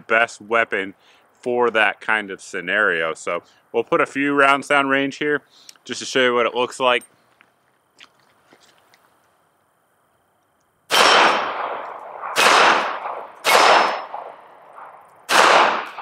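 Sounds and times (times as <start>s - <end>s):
revolver shots echoing: 10.9s - 16.0s.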